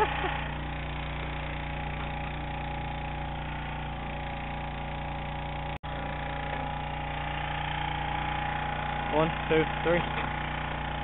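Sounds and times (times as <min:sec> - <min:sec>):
small boat engine droning: 0:00.0 - 0:11.0.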